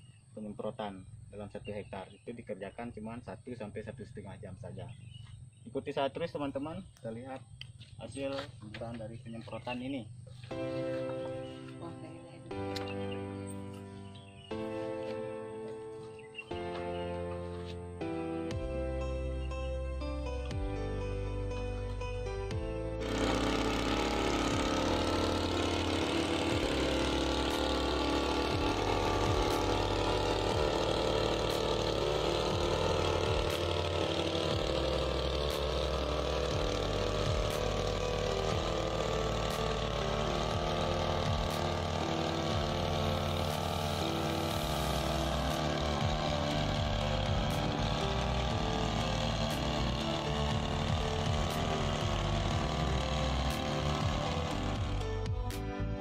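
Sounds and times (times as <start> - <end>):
small engine running steadily: 0.0 - 56.0.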